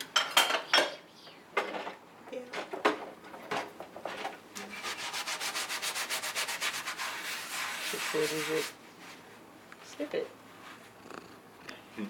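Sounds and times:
dishes being scrubbed: 0:04.6 - 0:08.8.

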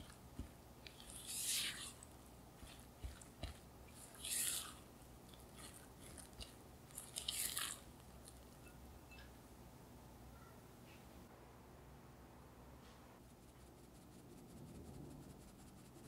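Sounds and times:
spatula folding batter in glass bowl: 0:00.0 - 0:07.6.

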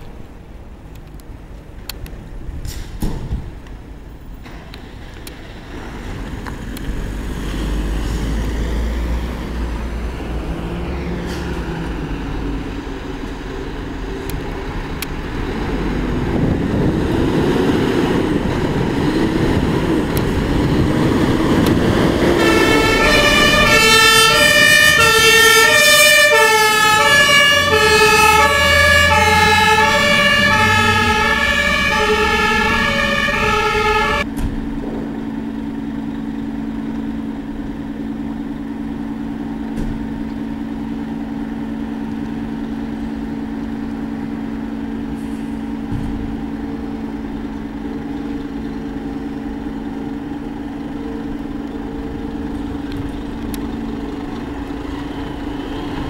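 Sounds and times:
diesel engines running: 0:00.0 - 0:56.0
siren wailing: 0:22.2 - 0:34.3
two-tone siren horn: 0:22.3 - 0:34.3.

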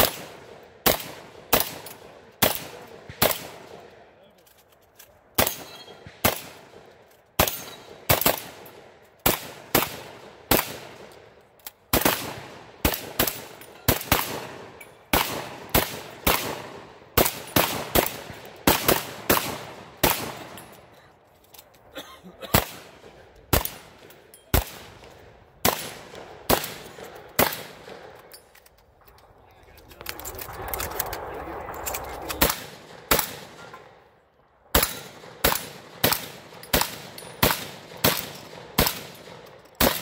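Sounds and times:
shotgun shots: 0:00.0 - 0:03.8, 0:05.4 - 0:11.1, 0:11.9 - 0:20.6, 0:22.5 - 0:28.2, 0:32.2 - 0:34.0, 0:34.7 - 0:40.0.

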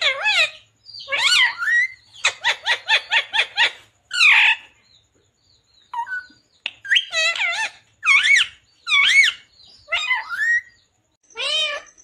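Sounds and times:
parakeet wavering call: 0:00.0 - 0:04.7, 0:06.0 - 0:12.0
parakeet chattering notes: 0:06.0 - 0:10.7.

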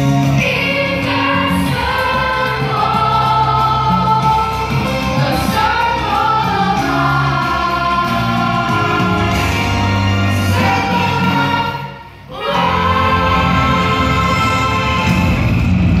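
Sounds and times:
music with steady bass line: 0:00.0 - 0:11.9
choir singing: 0:00.0 - 0:15.6.

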